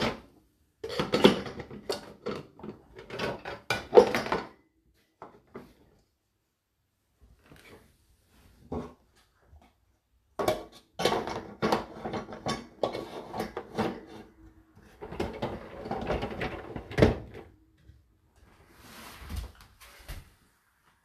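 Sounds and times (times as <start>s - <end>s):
dishes clattering in dishwasher racks: 0.8s - 4.6s, 10.4s - 14.3s
dishwasher racks rattling and rolling: 0.9s - 4.5s, 11.0s - 14.2s, 15.0s - 17.4s.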